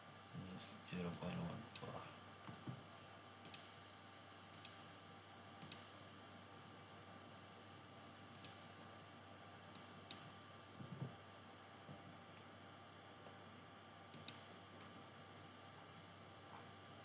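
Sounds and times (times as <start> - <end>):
computer mouse clicks: 3.4 - 3.7, 4.5 - 4.9, 5.6 - 6.0, 8.3 - 8.7, 9.7 - 10.4, 14.1 - 14.5.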